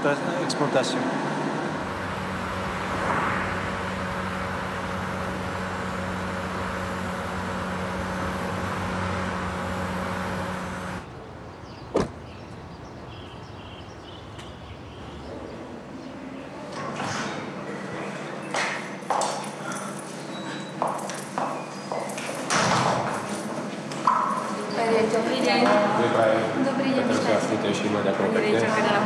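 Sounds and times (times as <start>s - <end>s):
car driving noise: 1.6s - 11.2s
low hum: 1.7s - 11.1s
car door shutting: 11.9s - 12.2s.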